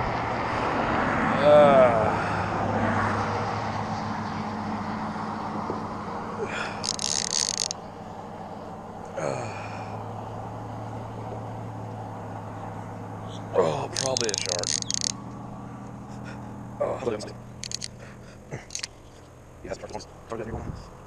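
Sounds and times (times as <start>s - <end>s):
fishing reel drag buzzing: 6.6s - 7.9s, 14.0s - 15.2s, 17.6s - 18.0s, 18.6s - 19.0s.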